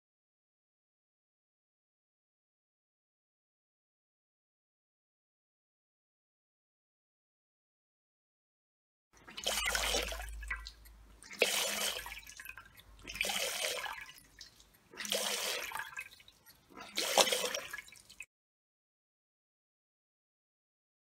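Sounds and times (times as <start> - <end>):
water gushing into glass dish: 9.2 - 18.3.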